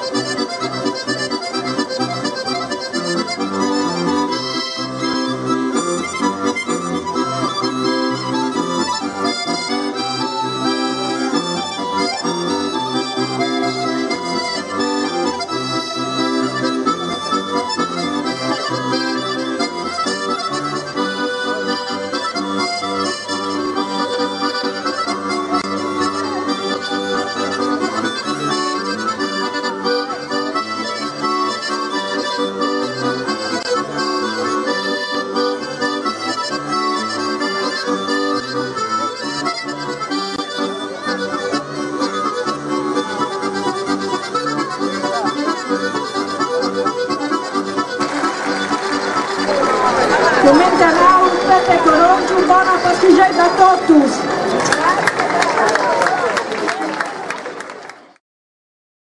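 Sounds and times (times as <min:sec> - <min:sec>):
accordion dance tune: 0:00.0 - 0:58.2.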